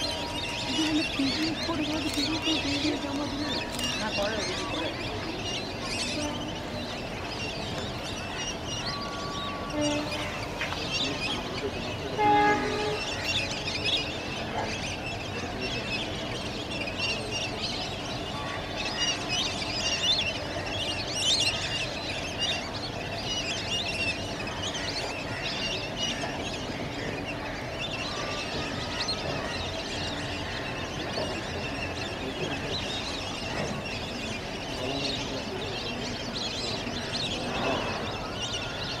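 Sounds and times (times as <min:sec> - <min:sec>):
passing train rumble: 0:00.0 - 0:21.0
flock of ducks calling: 0:00.0 - 0:39.0
train horn tone: 0:09.2 - 0:10.5, 0:12.0 - 0:13.2.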